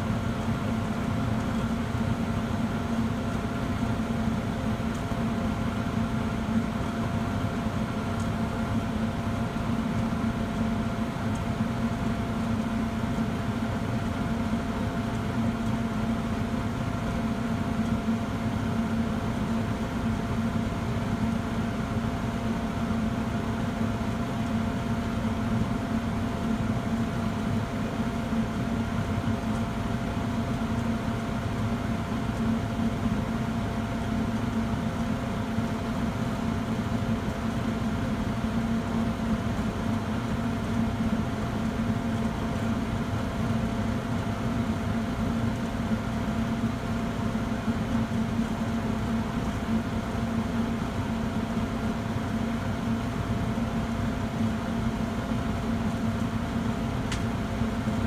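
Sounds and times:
furnace motor hum: 0:00.0 - 0:58.0.

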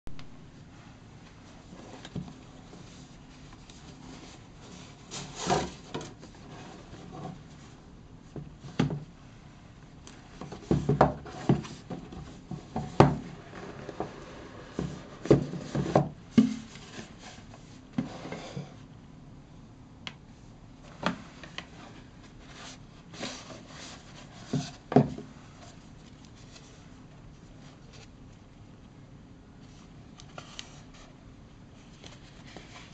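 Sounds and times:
cardboard box sliding and rubbing: 0:13.3 - 0:18.8, 0:21.8 - 0:24.9.

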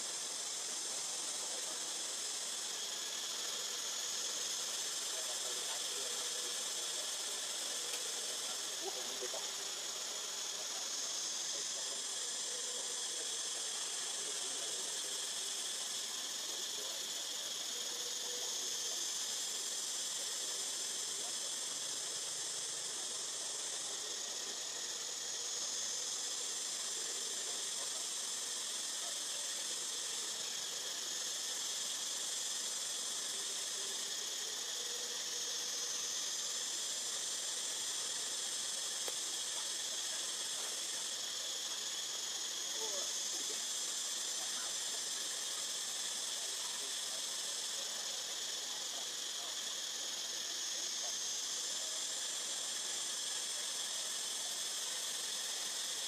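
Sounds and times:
insect chorus droning: 0:00.0 - 0:56.0.

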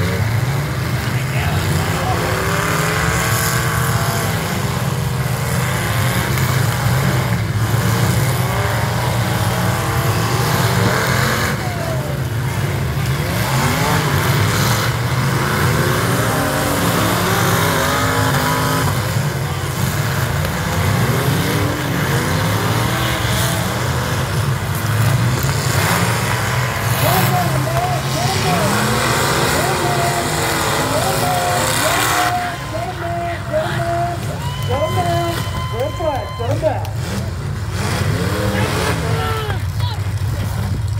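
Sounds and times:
car engines revving: 0:00.0 - 0:40.9.

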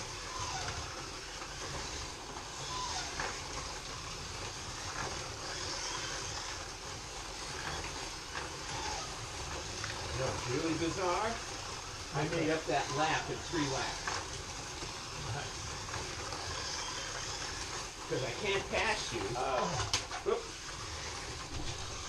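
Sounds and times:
slot cars whirring on track: 0:00.0 - 0:22.0.

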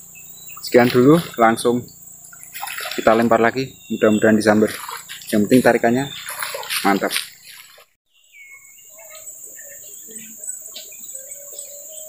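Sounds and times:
crickets droning: 0:00.0 - 0:12.0
faint bird chirps: 0:00.0 - 0:12.0.

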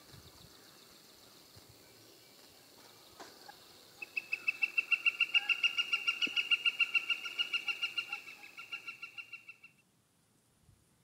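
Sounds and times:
woodpecker wik call: 0:03.2 - 0:09.8.

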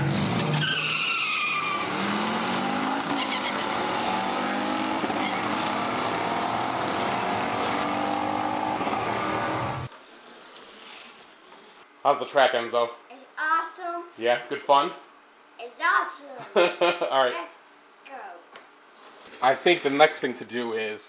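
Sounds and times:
slot car motor whine and rattle: 0:01.8 - 0:09.9.

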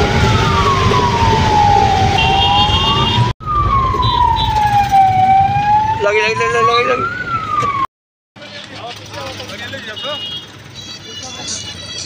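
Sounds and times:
ambulance siren wailing: 0:00.0 - 0:07.9
road noise: 0:00.0 - 0:12.0.

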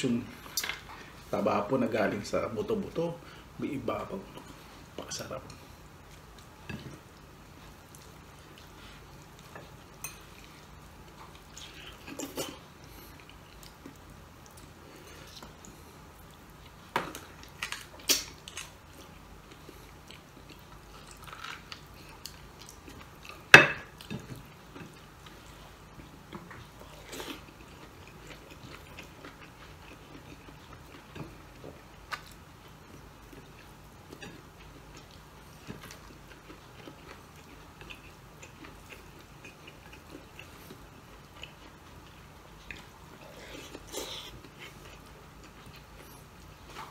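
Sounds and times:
person chewing and biting: 0:26.0 - 0:46.9.

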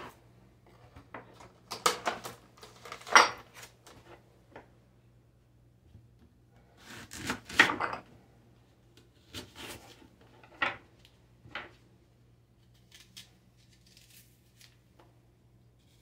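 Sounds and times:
knife cutting crisp apple: 0:06.8 - 0:07.8, 0:09.2 - 0:10.0, 0:12.6 - 0:14.8.

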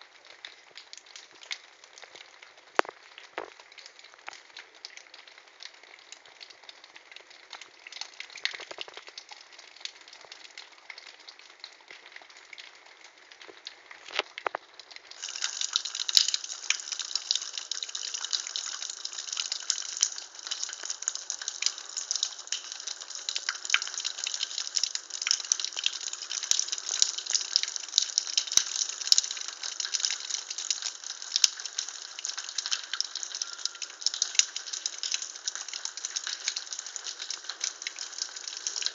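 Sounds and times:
water running and splashing: 0:07.2 - 0:10.4, 0:13.4 - 0:38.9.

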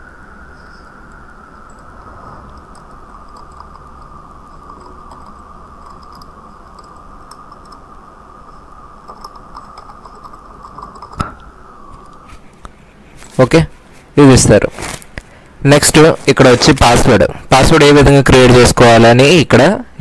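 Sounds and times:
high-pitched background whine: 0:00.0 - 0:20.0
keyboard typing: 0:02.5 - 0:07.8, 0:09.0 - 0:11.4.

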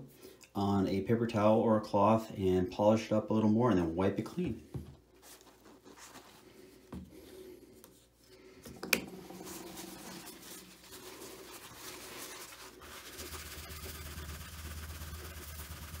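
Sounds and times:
paper towel wiping surface: 0:09.2 - 0:16.0.

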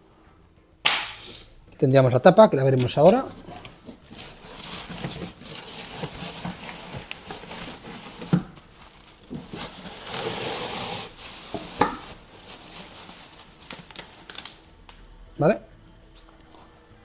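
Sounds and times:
bubble wrap crinkling: 0:02.7 - 0:15.1.

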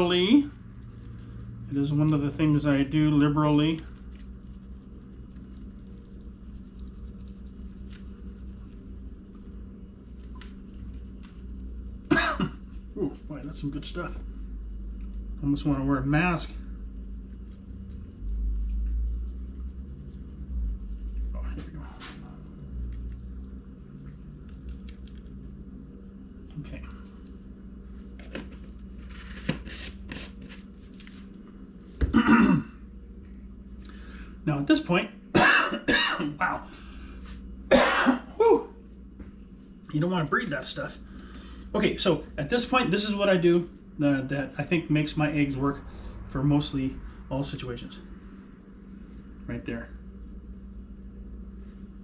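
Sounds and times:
powder shaken from shaker jar: 0:00.0 - 0:12.0
granules pattering on eggs: 0:00.0 - 0:29.5
steady low hum: 0:00.0 - 0:52.0.

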